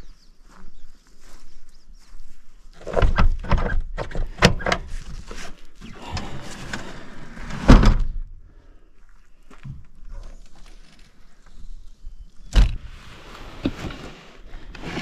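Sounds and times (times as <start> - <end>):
loud door thump: 7.7 - 8.2.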